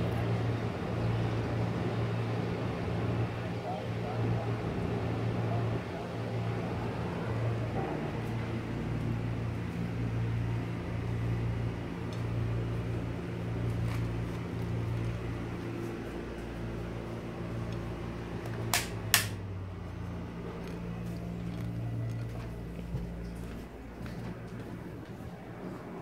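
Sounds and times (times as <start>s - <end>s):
fan motor hum: 0.0s - 26.0s
sharp clicks: 18.5s - 19.4s.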